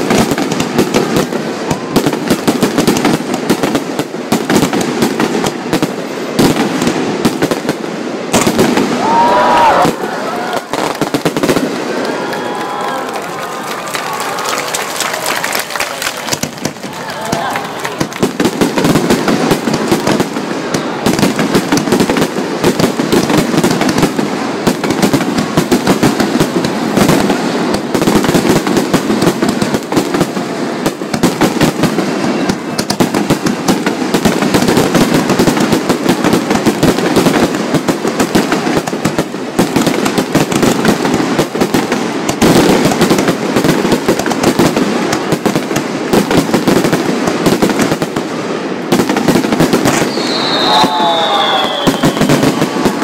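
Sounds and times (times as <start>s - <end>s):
fireworks shells bursting: 49.4s - 53.0s.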